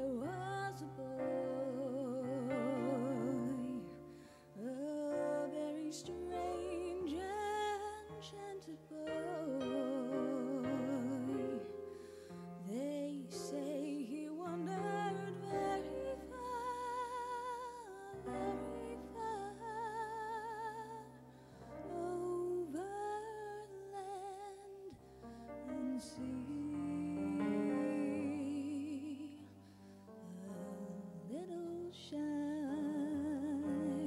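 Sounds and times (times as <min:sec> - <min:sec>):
woman singing a ballad: 0:00.0 - 0:25.0, 0:25.6 - 0:34.0
keyboard chords: 0:05.1 - 0:12.7.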